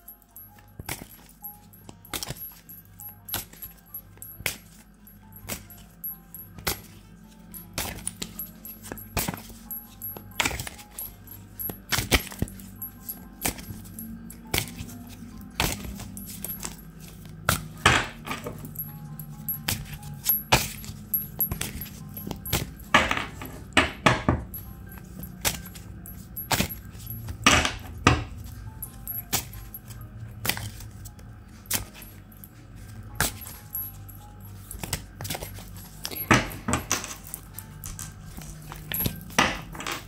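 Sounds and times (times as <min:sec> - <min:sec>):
soft background music: 0:00.0 - 0:40.0
cards being shuffled by hand: 0:29.3 - 0:36.5, 0:37.1 - 0:39.4.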